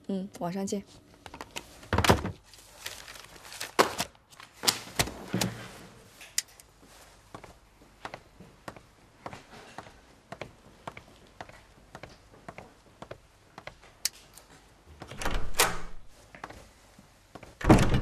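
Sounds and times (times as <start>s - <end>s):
papers rustling: 1.2s - 6.2s.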